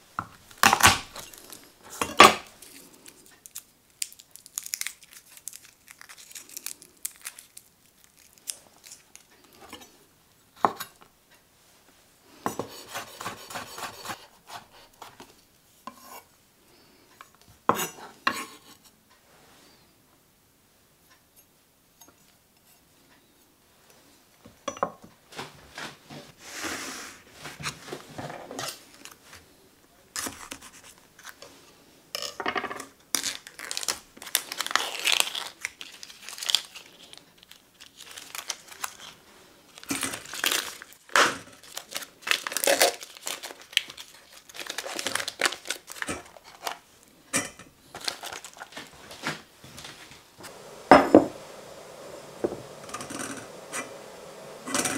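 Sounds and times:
plastic wrapper crinkling and tearing: 0.5s - 9.6s, 33.1s - 46.9s, 47.9s - 49.3s.

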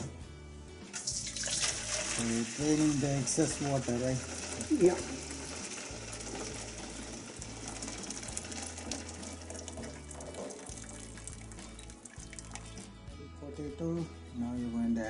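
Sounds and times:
water pouring and splashing: 1.0s - 12.9s.

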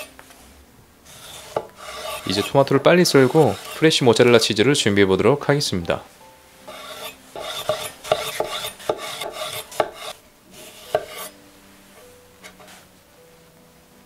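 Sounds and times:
knife slicing on cutting board: 1.1s - 2.6s, 3.2s - 3.8s, 6.7s - 11.4s.

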